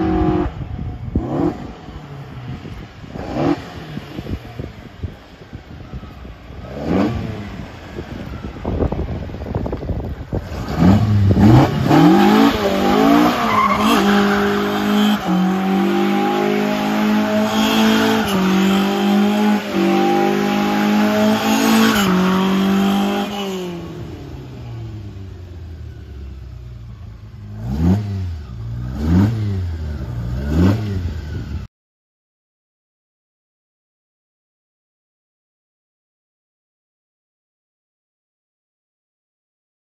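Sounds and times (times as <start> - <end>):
car engine revving: 0.0 - 4.4, 6.6 - 8.3, 10.3 - 26.4, 27.3 - 31.6.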